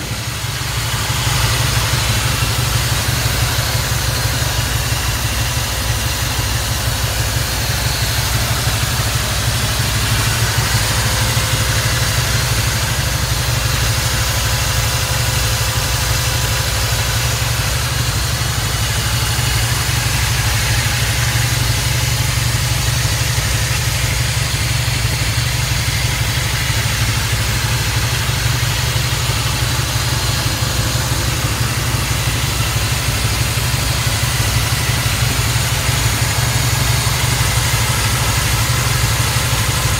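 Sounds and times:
truck engine idling: 0:00.0 - 0:39.9.

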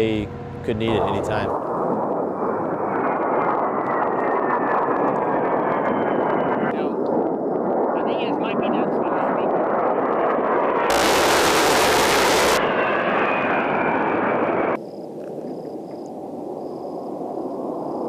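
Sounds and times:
jet aircraft flying past: 0:00.0 - 0:18.0
loud burst: 0:10.9 - 0:12.7.

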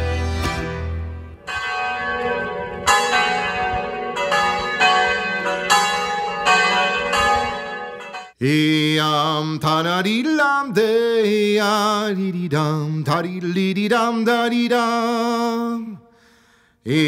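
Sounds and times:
church bells ringing: 0:01.2 - 0:08.4.

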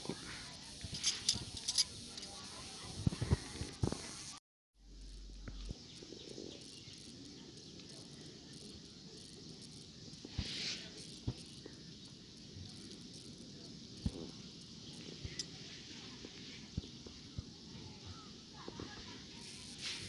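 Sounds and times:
insect chirring: 0:00.0 - 0:20.0
metal bangles clicking: 0:00.9 - 0:02.3.

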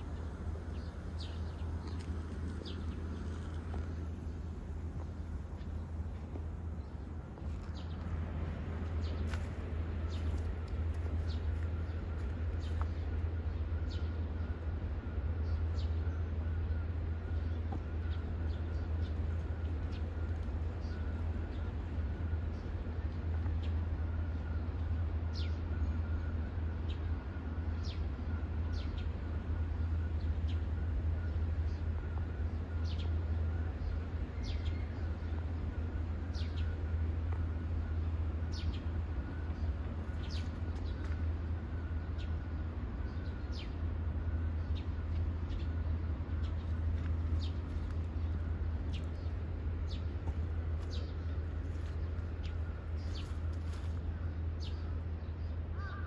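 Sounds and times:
steady low rumble: 0:00.0 - 0:56.0
birds chirping: 0:27.8 - 0:56.0.

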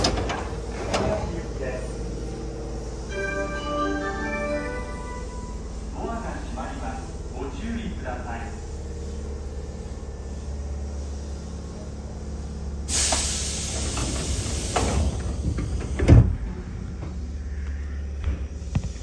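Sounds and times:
train doors thumping shut: 0:00.0 - 0:01.5, 0:12.9 - 0:17.3
standing train low hum: 0:00.0 - 0:19.0
air hiss of train doors: 0:09.0 - 0:19.0.

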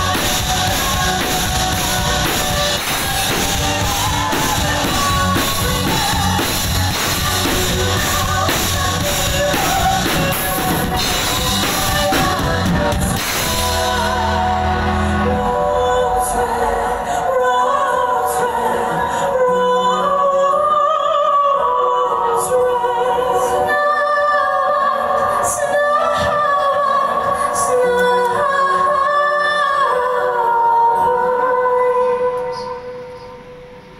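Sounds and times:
low band accompaniment: 0:00.0 - 0:17.4
women singing in harmony: 0:00.0 - 0:33.0.

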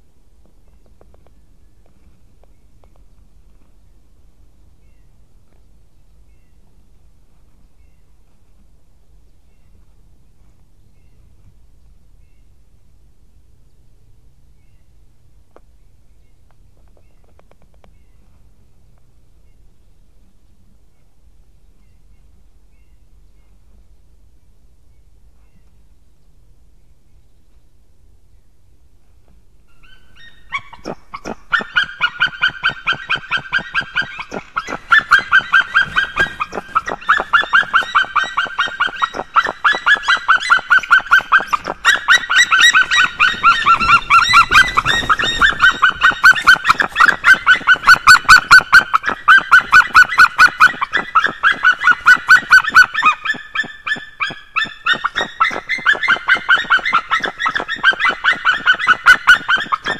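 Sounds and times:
eagle yelping call: 0:29.7 - 0:59.9.

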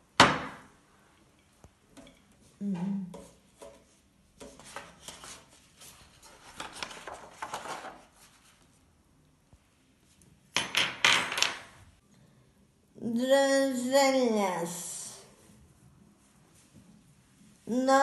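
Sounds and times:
paper rustling: 0:04.4 - 0:08.8.

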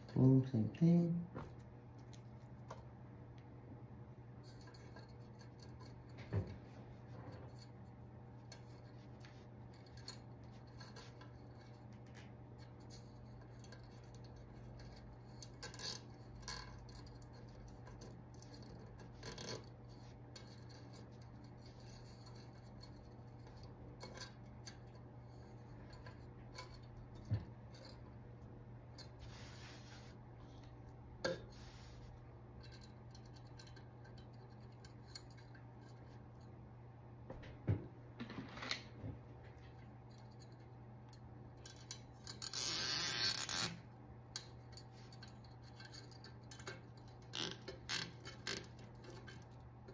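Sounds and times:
steady low hum: 0:00.0 - 0:42.6.

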